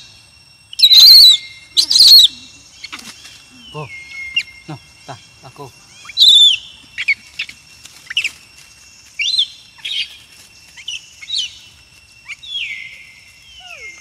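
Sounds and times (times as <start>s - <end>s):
high-pitched chirping calls: 0.0s - 8.4s.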